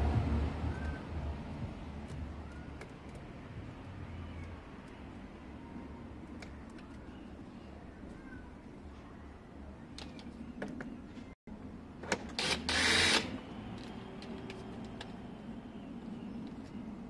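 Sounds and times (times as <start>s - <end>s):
cordless drill drilling plastic: 12.4s - 13.3s.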